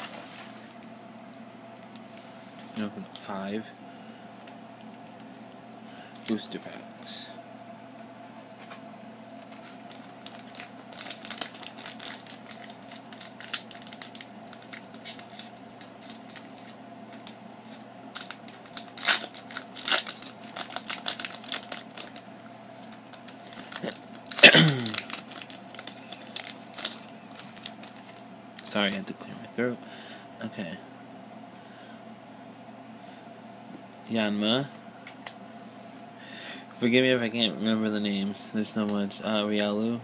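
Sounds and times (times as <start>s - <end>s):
foil wrapper crinkling and tearing: 9.5s - 17.4s, 18.1s - 29.0s
person clearing throat: 24.4s - 25.0s.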